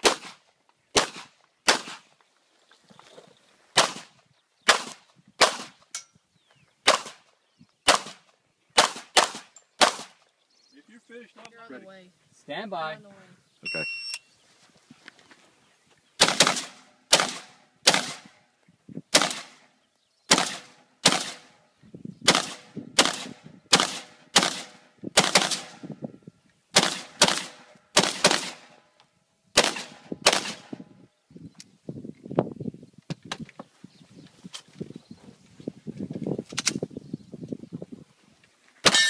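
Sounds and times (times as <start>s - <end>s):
rifle shots ringing: 16.2s - 18.2s.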